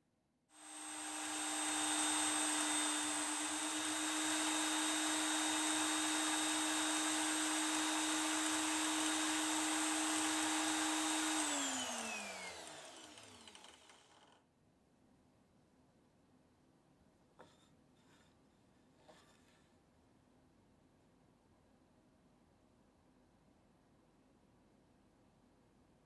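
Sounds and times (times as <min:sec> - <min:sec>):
drill bit boring into plywood: 0:00.6 - 0:14.4
drill press motor running: 0:00.6 - 0:14.4.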